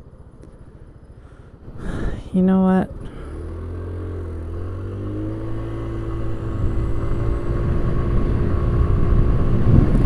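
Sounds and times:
scooter engine accelerating: 2.8 - 10.0.

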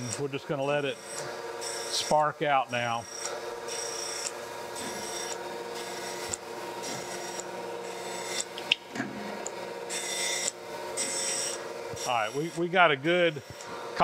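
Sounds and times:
grinder spindle hum: 0.0 - 14.0
high grinding hiss: 9.4 - 14.0.

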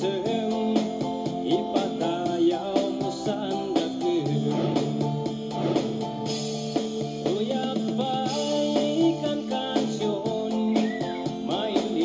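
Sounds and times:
person singing: 0.0 - 6.2, 7.0 - 12.0
drums keeping steady beat: 0.0 - 12.0
guitar: 0.0 - 12.0.

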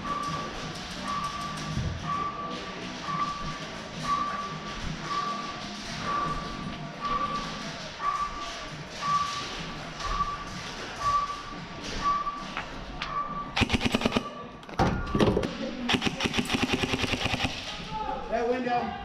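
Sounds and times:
faint beep: 0.0 - 9.4, 10.0 - 14.5
airsoft rifles firing bursts: 13.6 - 14.4, 15.9 - 17.8.

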